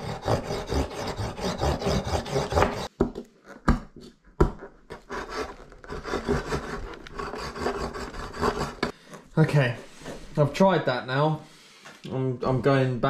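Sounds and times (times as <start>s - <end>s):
knife sawing and scraping: 0.0s - 2.9s, 4.9s - 9.0s.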